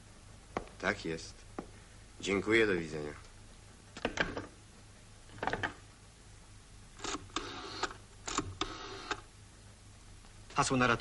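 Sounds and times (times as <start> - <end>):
rotary dial whirring: 7.0 - 9.2.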